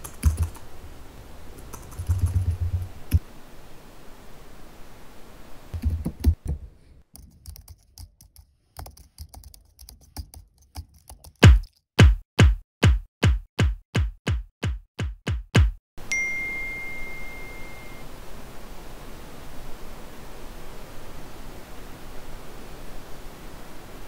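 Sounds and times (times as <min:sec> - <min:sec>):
laptop keyboard typing: 0:00.0 - 0:00.6, 0:01.6 - 0:03.2, 0:05.8 - 0:06.6, 0:07.2 - 0:11.8
electronic kick-drum hits: 0:11.4 - 0:15.8.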